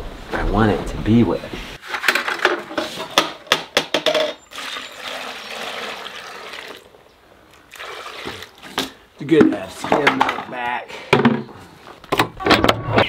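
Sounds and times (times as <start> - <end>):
bucket knocking and clattering: 1.8 - 5.0, 8.2 - 11.6
milk pouring and splashing: 4.4 - 8.8.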